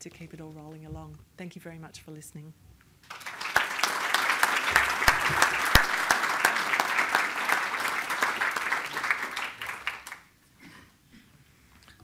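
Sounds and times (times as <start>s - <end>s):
audience applauding: 3.0s - 10.3s.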